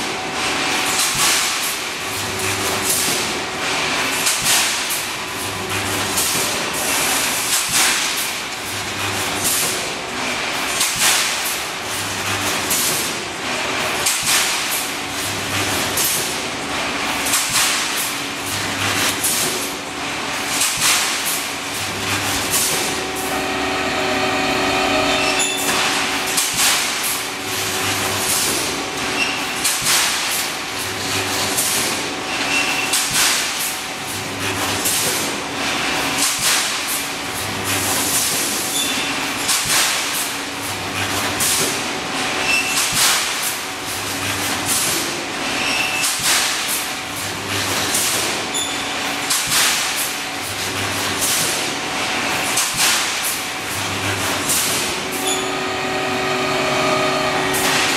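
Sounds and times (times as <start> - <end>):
steady machine hum: 11.4 - 32.3, 53.4 - 57.9
short low welding buzz: 21.8 - 29.0, 54.5 - 57.9.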